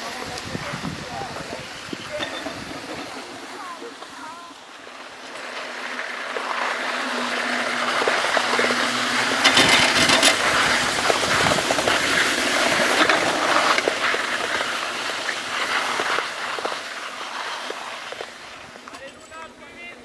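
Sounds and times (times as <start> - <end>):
skis sliding over snow: 0.0 - 20.0
clattering rattle: 8.1 - 13.9.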